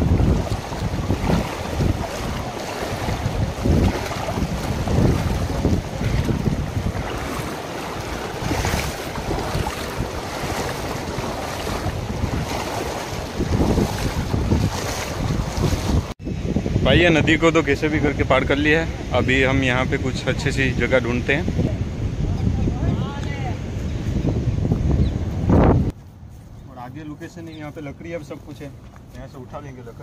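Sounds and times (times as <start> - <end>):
river water splashing while wading: 0.0 - 16.2
wind buffeting microphone: 0.0 - 27.3.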